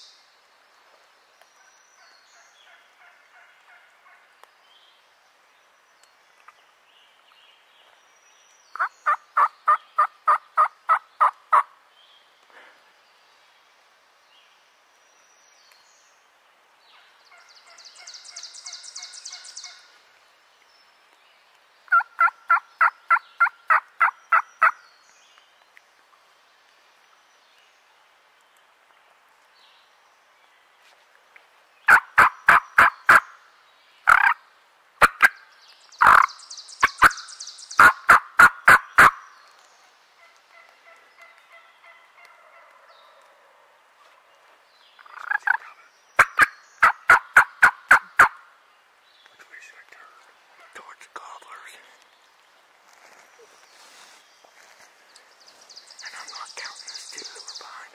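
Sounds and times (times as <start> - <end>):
turkey gobbling: 8.8 - 11.6, 21.9 - 24.7, 31.9 - 33.2, 34.1 - 34.4, 36.0 - 36.3, 37.8 - 39.2, 45.1 - 45.6, 46.2 - 48.4.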